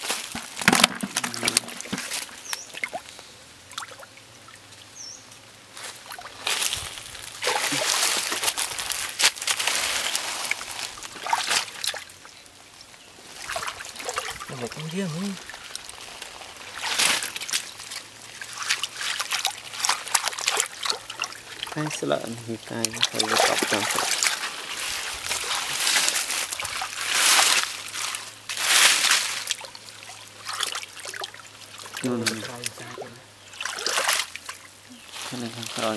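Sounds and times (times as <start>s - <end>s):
hands splashing in shallow water: 7.4s - 12.1s, 22.8s - 33.0s, 33.6s - 34.6s.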